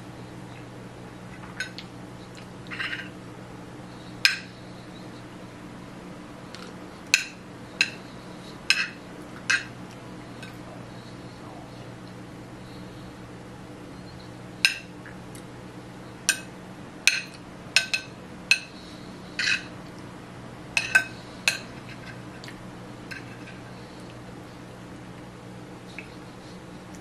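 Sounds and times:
fork clinking on plate: 20.8 - 22.2.

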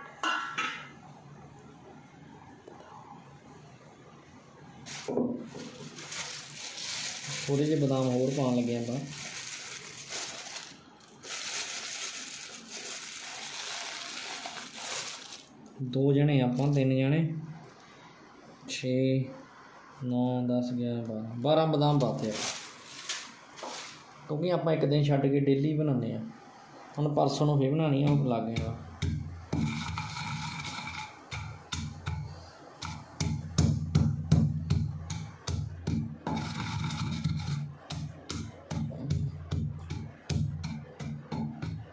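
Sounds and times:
plastic bag crinkling: 4.8 - 15.6, 21.9 - 24.2
pestle pounding in stone mortar: 28.1 - 41.9.

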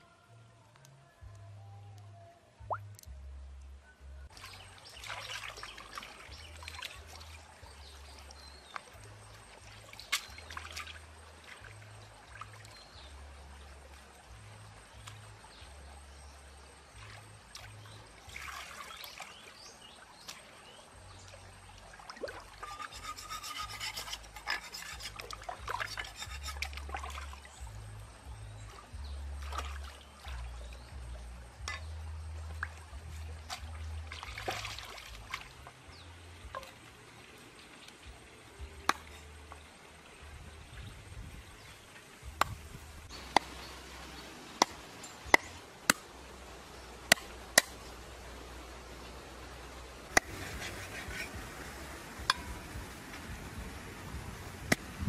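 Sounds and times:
water splashing: 4.3 - 15.8, 16.9 - 27.9, 28.6 - 40.2, 41.5 - 55.0
water dripping and trickling: 4.3 - 55.0
feet splashing through water: 4.4 - 12.8, 16.9 - 22.8, 25.2 - 27.7, 28.7 - 30.8, 32.6 - 35.8
hands scrubbing duck in water: 22.3 - 27.4.

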